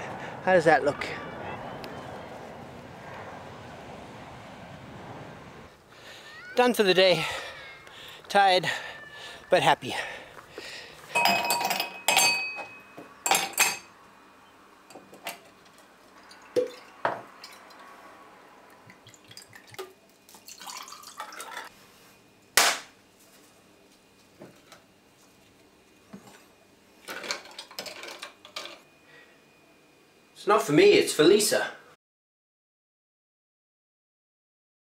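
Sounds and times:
glass ringing: 0:11.1 - 0:13.9
glass handling knocks: 0:11.2 - 0:13.9
drink poured over ice: 0:18.9 - 0:21.7.

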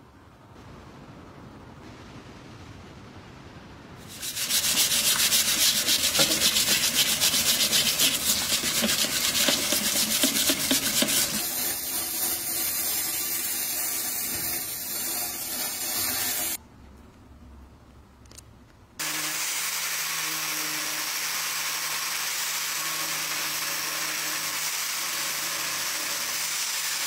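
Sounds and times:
stiff brush scrubbing metal: 0:04.0 - 0:16.6
running tap: 0:04.1 - 0:11.5.

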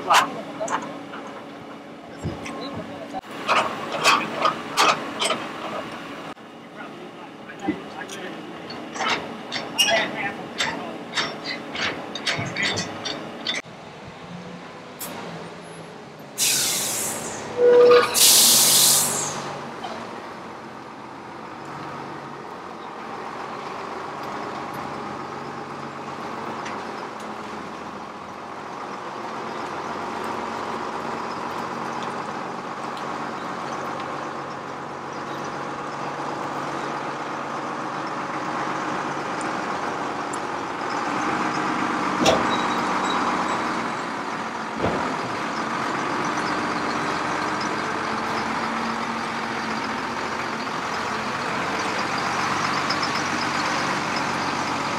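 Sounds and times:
truck diesel engine running: 0:18.5 - 0:54.9.

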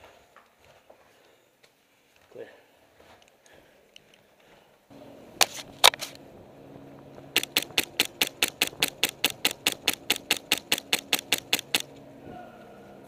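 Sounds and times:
faint steady hum: 0:03.2 - 0:13.0
airsoft gun shots: 0:07.4 - 0:11.9.

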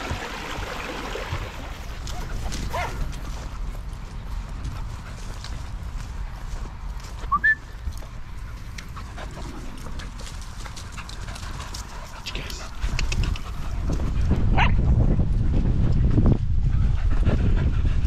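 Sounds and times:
dogs scampering on grass: 0:01.8 - 0:14.3
small dogs panting: 0:08.0 - 0:14.5, 0:15.4 - 0:18.0.

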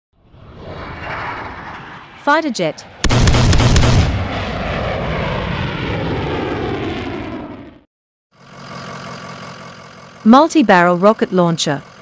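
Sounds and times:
jet engine rushing: 0:00.2 - 0:07.9.

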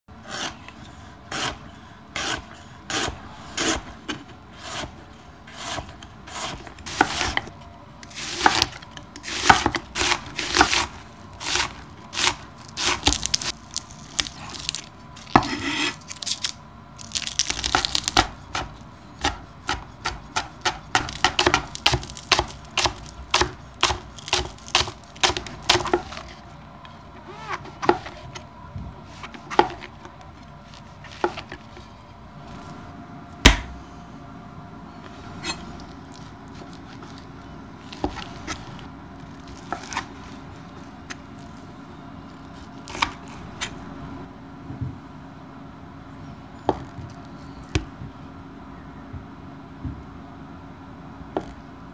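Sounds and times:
knife chopping on wooden board: 0:05.6 - 0:07.5, 0:08.1 - 0:13.5, 0:15.3 - 0:16.0, 0:17.6 - 0:26.3, 0:29.4 - 0:29.9, 0:33.4 - 0:33.8.

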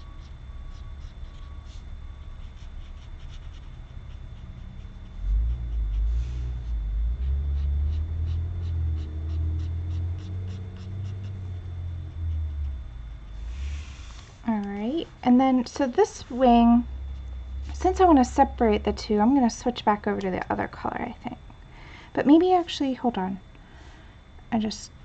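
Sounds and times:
low rumble: 0:00.0 - 0:25.0
brush marker scratching paper: 0:02.4 - 0:04.2.

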